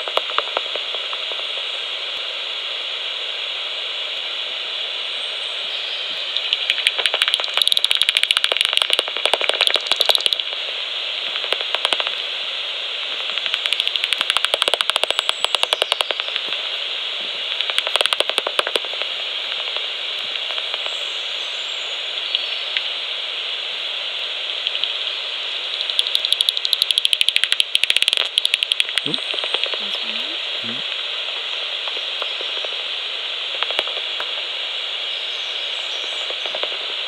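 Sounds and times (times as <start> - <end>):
bat detector hiss: 0.0 - 37.0
bursts of rapid clicks: 6.4 - 10.6, 11.3 - 12.2, 13.2 - 16.7, 17.5 - 20.9, 25.8 - 29.9.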